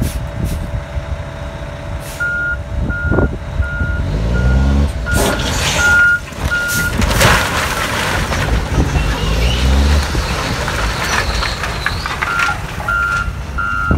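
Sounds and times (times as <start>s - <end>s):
diesel engine running: 0.0s - 13.9s
wooden pallets clattering: 5.2s - 13.6s
backup alarm beeping: 12.9s - 13.9s.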